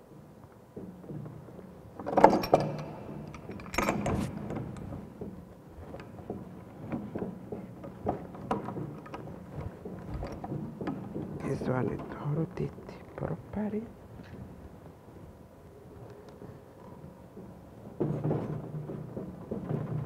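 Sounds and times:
pipe wrenches clanking on metal: 2.0s - 4.7s.

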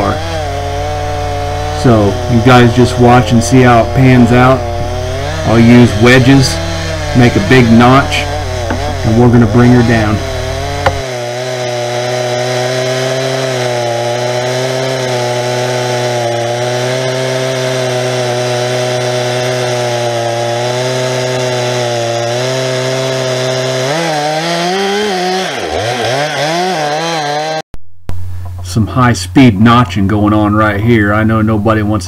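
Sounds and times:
chainsaw cutting wood: 0.0s - 27.6s.

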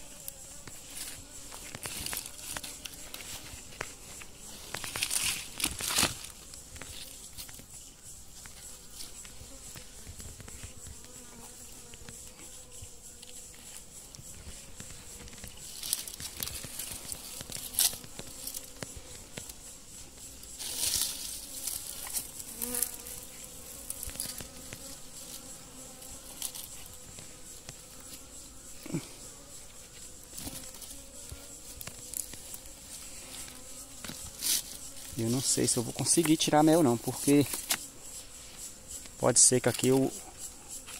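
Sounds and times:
bees buzzing: 0.0s - 40.9s.

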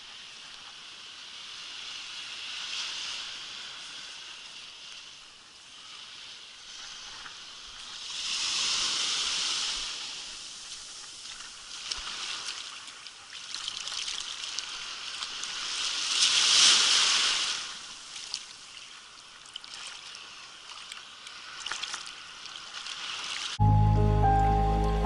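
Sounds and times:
waves washing on beach: 0.0s - 23.6s
small water splashes: 6.8s - 23.6s.

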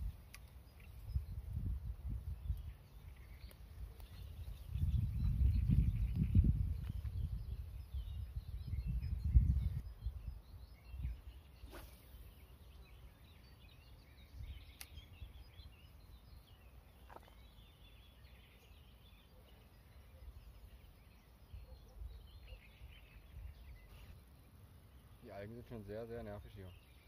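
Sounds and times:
wind rumbling on microphone: 0.0s - 13.0s, 14.2s - 16.4s
small birds singing and chirping: 0.0s - 27.0s
faint sharp clicks: 0.2s - 0.9s, 14.7s - 15.0s.

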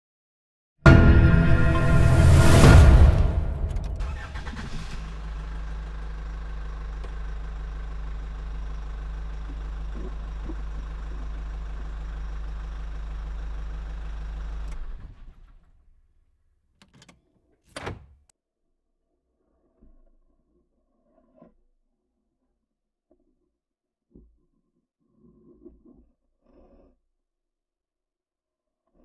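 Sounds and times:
engine idling: 3.6s - 15.6s.

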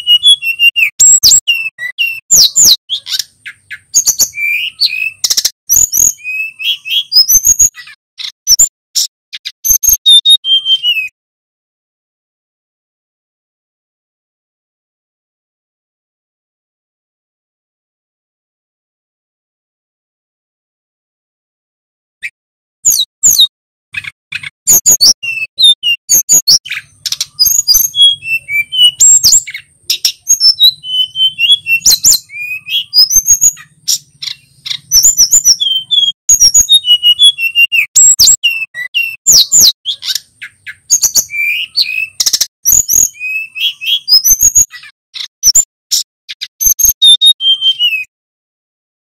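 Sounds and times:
bird singing whistled trills: 0.0s - 11.1s, 22.8s - 48.1s
sharp clicking bird notes: 26.4s - 47.2s.

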